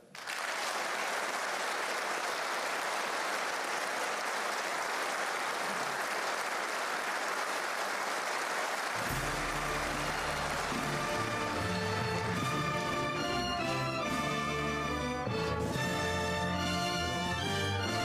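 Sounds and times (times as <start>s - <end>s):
audience applauding: 0.0s - 14.2s
music: 9.0s - 18.0s.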